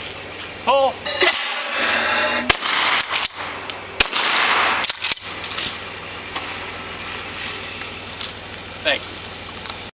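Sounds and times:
rushing noise: 1.0s - 3.6s
shotgun firing: 2.4s - 5.3s.

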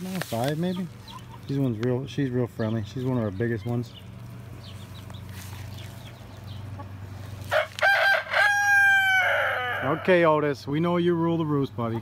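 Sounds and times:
low steady hum: 0.0s - 12.0s
rooster crowing: 7.4s - 10.3s.

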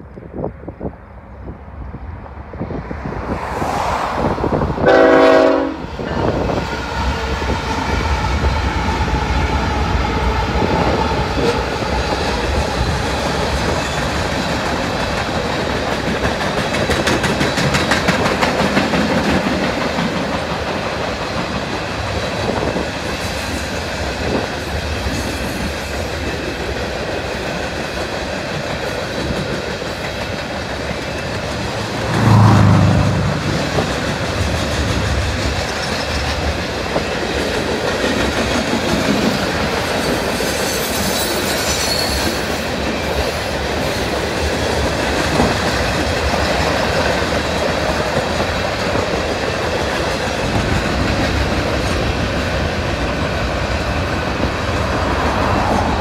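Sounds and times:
train horn blast: 4.8s - 6.4s, 31.9s - 34.2s
freight cars rumbling by: 30.2s - 37.0s.

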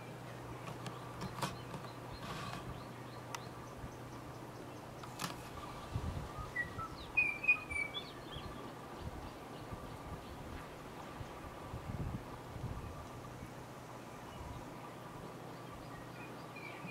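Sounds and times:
songbird high chirps: 0.0s - 11.4s, 12.8s - 16.9s
outdoor background noise: 0.0s - 16.9s
faint click: 3.3s - 3.5s.

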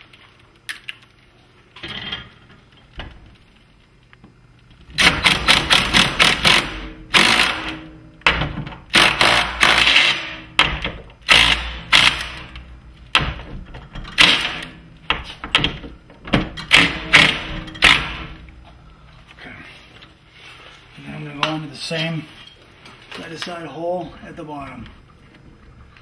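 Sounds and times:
impact driver hammering: 5.0s - 12.5s, 14.2s - 18.4s.

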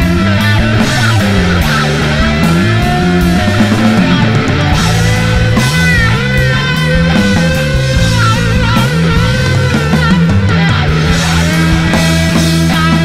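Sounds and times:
bending lead guitar line: 0.0s - 13.0s
rock music: 0.0s - 13.0s.

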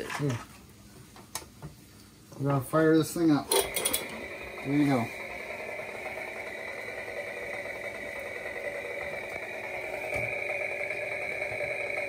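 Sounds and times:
toy chainsaw motor hum: 3.5s - 12.0s.

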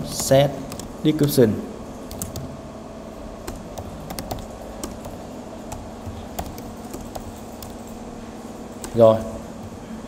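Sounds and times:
typing on a computer keyboard: 0.1s - 1.4s, 2.1s - 2.5s, 3.4s - 8.0s, 8.8s - 9.2s.

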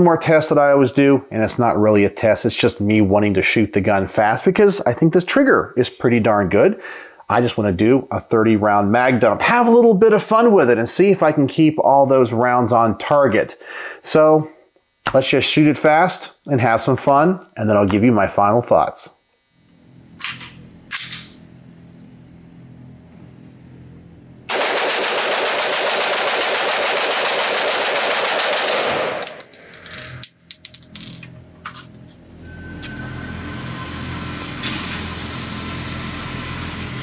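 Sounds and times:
rapid rifle gunfire with echo: 24.5s - 29.2s
clinks and knocks: 29.1s - 31.9s.

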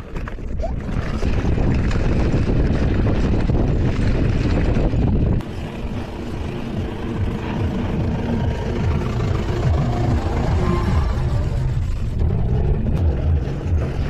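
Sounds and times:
bike tyres rattling on rocky track: 0.0s - 5.4s
wind buffeting microphone: 0.0s - 14.0s.

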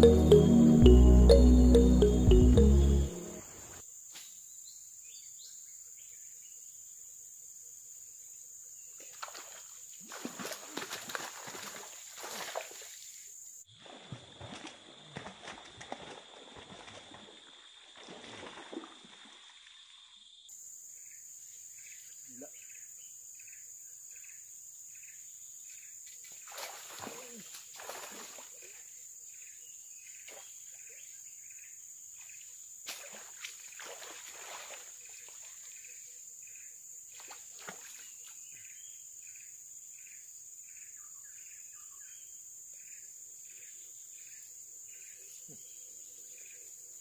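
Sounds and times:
insects droning: 2.7s - 47.0s
water splashes: 9.0s - 13.0s, 13.7s - 19.8s, 26.4s - 28.8s, 32.9s - 35.7s, 37.2s - 38.2s
chirp: 38.0s - 46.7s.

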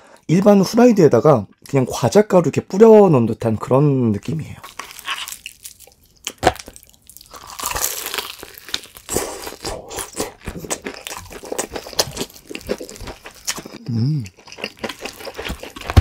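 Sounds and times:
crunching fried chicken crust: 4.5s - 16.0s.

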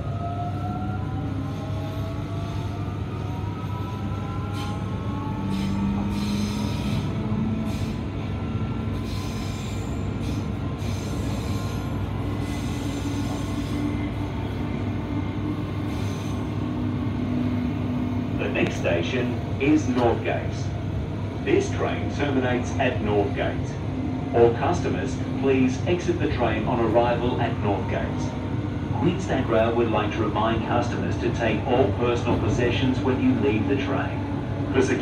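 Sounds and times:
low rumble of train car: 0.0s - 35.0s.

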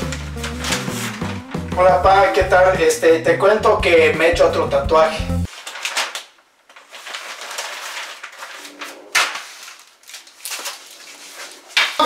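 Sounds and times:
sharp paper crack: 0.0s - 1.7s, 5.5s - 12.0s
newspaper rustling: 0.0s - 2.4s, 5.5s - 12.0s.

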